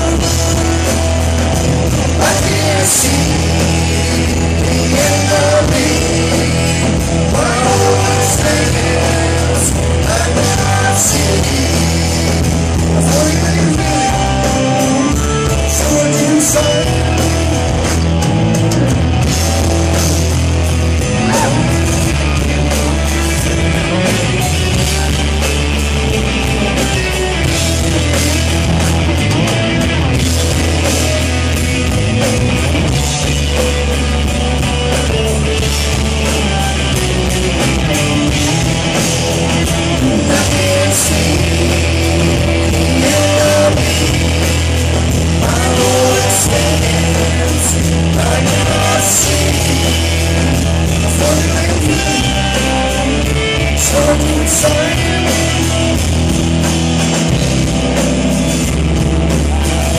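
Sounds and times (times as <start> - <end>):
bass guitar: 0.0 - 59.9
drums: 0.0 - 59.9
electric guitars: 0.0 - 59.9
man singing: 1.9 - 17.6, 21.2 - 24.7, 38.2 - 56.0.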